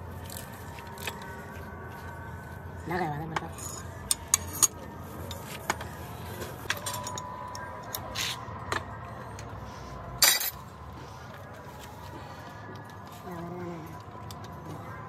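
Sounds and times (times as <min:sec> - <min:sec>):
metal parts and tools clinking: 0:00.2 - 0:01.5, 0:03.4 - 0:08.4, 0:10.2 - 0:10.7
metal parts clattering: 0:10.2 - 0:10.6.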